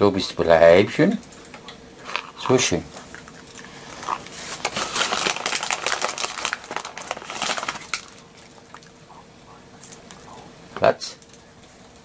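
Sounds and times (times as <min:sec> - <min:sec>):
puppy chewing a treat: 0:02.3 - 0:04.4.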